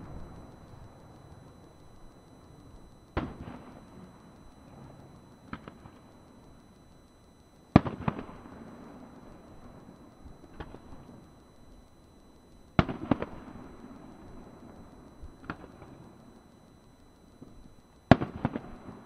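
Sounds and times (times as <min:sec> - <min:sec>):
fireworks bursting with rumble: 0:03.1 - 0:03.8, 0:07.7 - 0:09.1, 0:12.8 - 0:13.6, 0:18.0 - 0:19.0.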